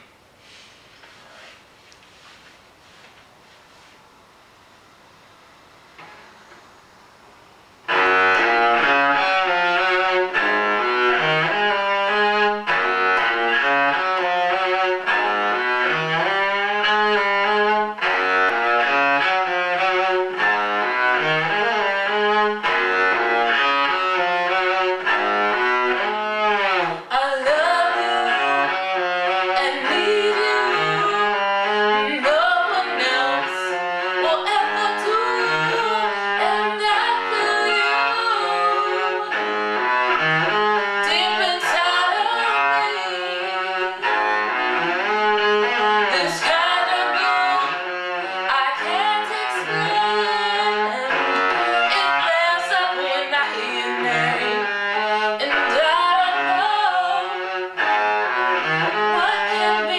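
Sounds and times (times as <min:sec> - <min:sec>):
solo cello playing: 0:07.8 - 0:59.9.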